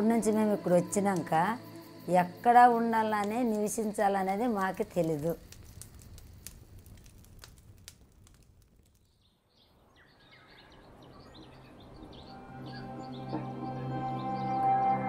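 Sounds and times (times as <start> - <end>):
fire crackling: 0.0 - 12.4
birds chirping: 9.0 - 14.9.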